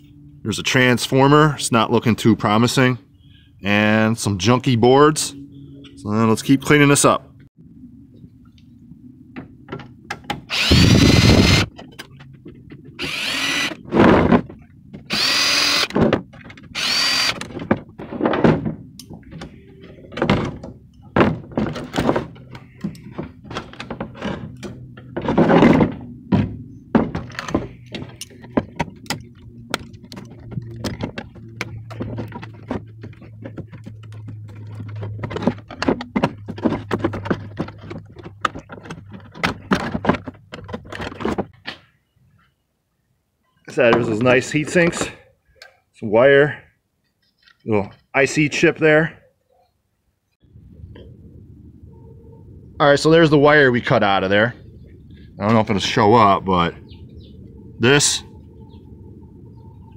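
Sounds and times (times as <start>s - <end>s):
cordless drill whirring: 10.5s - 11.7s, 13.0s - 13.8s, 15.1s - 15.9s, 16.8s - 17.4s
clicks and clatter of parts: 11.4s - 41.8s.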